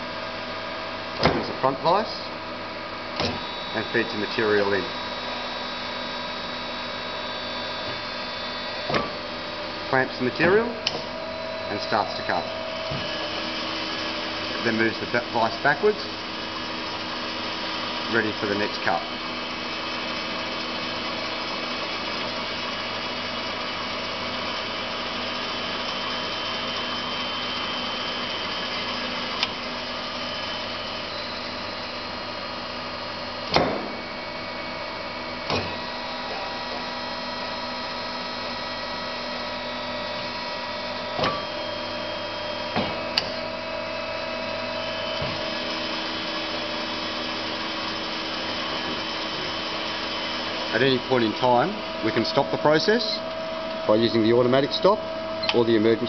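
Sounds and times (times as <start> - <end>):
bandsaw humming and whining: 0.0 - 56.0
sharp mechanical knocks: 33.5 - 34.0.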